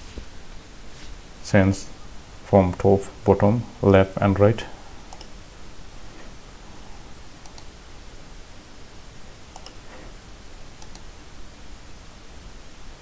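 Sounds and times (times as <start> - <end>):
steady background hiss: 0.0 - 13.0
computer mouse button clicking: 7.4 - 7.7, 9.5 - 9.8, 10.8 - 11.1.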